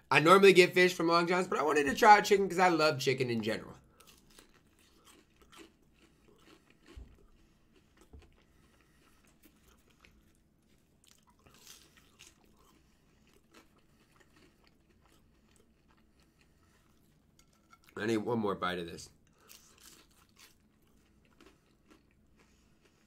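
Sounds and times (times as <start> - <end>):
chewing and crunching: 3.8 - 18.1, 19.1 - 23.0.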